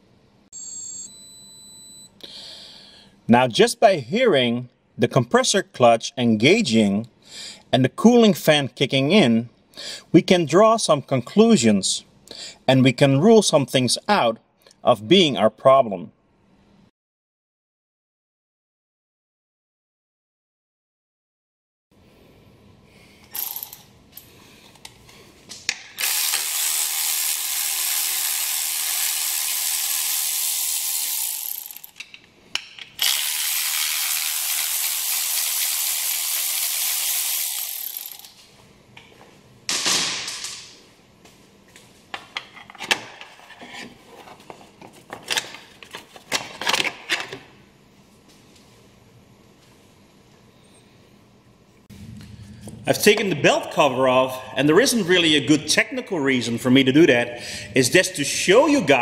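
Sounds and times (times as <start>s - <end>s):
cordless ratchet spinning: 26.0s - 32.0s, 33.0s - 38.4s.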